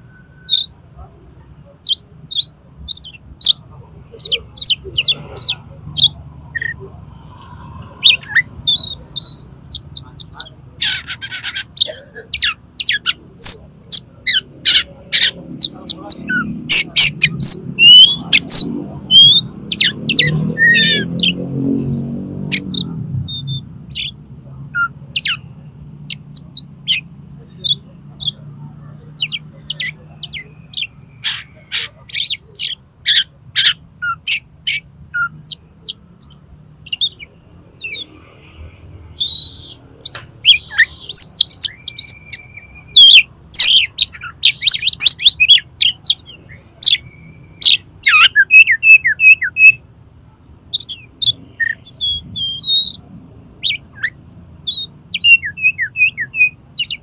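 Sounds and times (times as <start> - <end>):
bird singing whistled song: 0.1 - 0.8, 15.7 - 24.2, 39.1 - 49.8, 50.7 - 53.0, 53.6 - 57.0.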